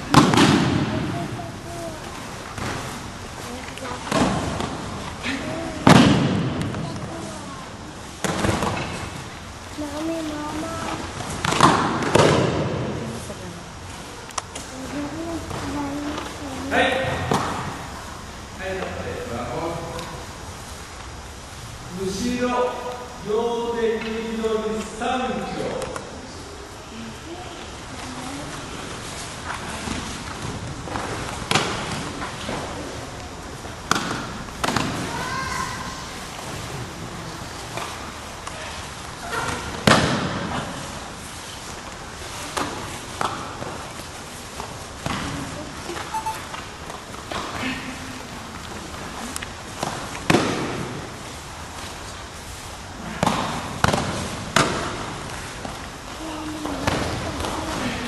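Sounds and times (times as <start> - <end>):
sharp slap on a mat: 0.1 - 1.1, 5.9 - 6.8, 11.4 - 13.0, 53.1 - 55.0
bodies slapping onto mat: 53.1 - 55.8.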